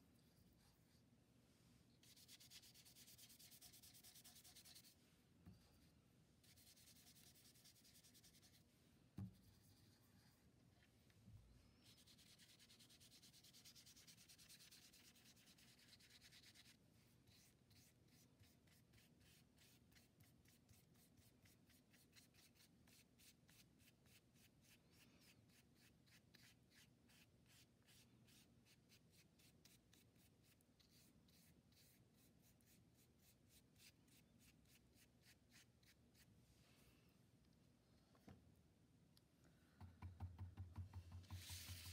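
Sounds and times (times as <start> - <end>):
paintbrush scrubbing on paper: 2.0 - 5.0, 6.4 - 8.7, 11.8 - 36.4, 41.3 - 41.9.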